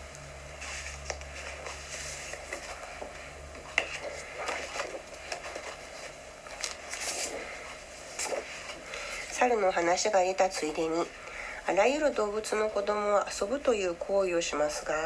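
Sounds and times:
paper rustling: 0.6 - 9.1.

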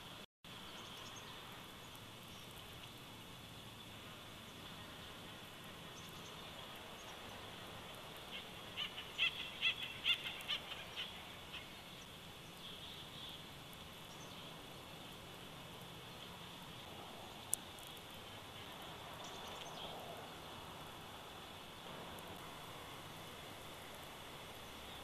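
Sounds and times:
background hiss: 0.0 - 25.0.

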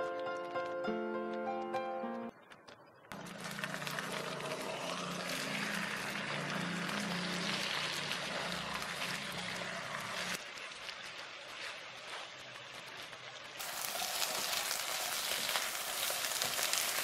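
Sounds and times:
spatula turning food in pan: 3.2 - 12.3, 13.6 - 17.0
egg and tofu sizzling in oil: 3.2 - 12.8, 13.4 - 17.0.

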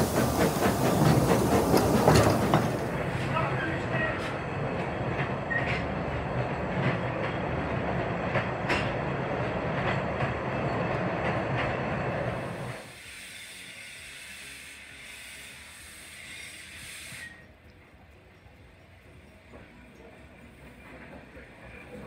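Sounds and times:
wheels clicking over rail joints: 0.0 - 12.0
train running on rails: 0.0 - 22.0.

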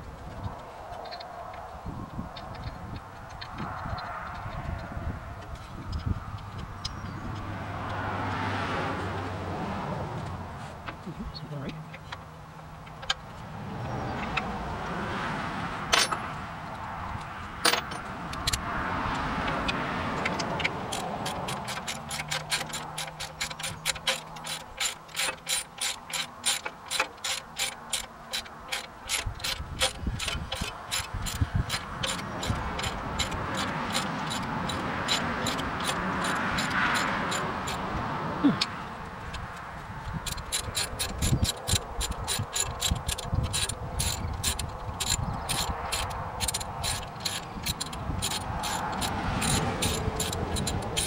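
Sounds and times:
ratchet wrench clicking: 2.3 - 8.0, 19.4 - 37.9, 38.6 - 51.0.

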